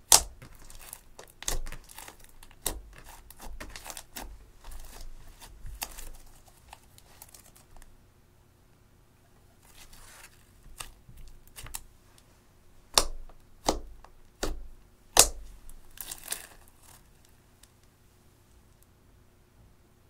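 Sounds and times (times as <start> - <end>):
slime squishing: 0.0 - 7.9, 9.7 - 11.9, 12.9 - 17.2.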